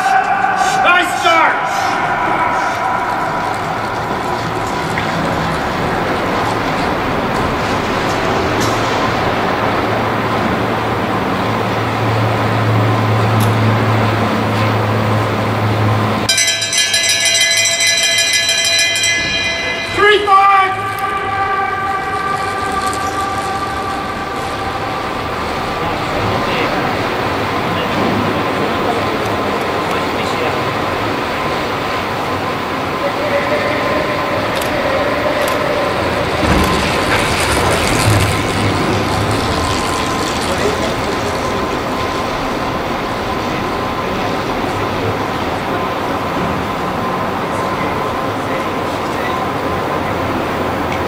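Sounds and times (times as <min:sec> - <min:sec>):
bicycle chain and tyres whirring: 0:00.0 - 0:51.0
low hum: 0:01.5 - 0:51.0
bell rung rapidly: 0:16.3 - 0:25.2.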